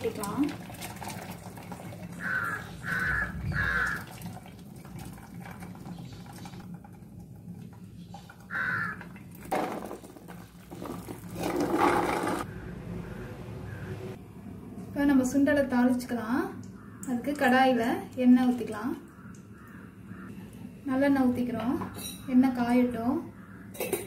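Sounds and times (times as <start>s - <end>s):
water pouring through colander: 0.0s - 3.0s, 3.6s - 12.5s
crow cawing: 2.2s - 4.1s, 8.5s - 9.1s, 16.8s - 17.1s, 19.1s - 20.4s.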